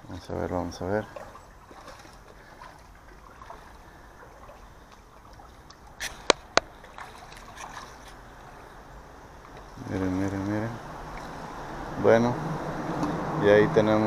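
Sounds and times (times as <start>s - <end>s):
fish splashing in water: 1.0s - 12.0s.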